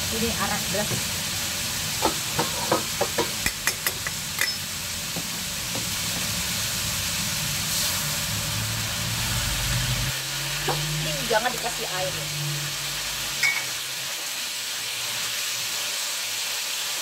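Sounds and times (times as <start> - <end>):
liver sizzling in oil: 0.0 - 17.0.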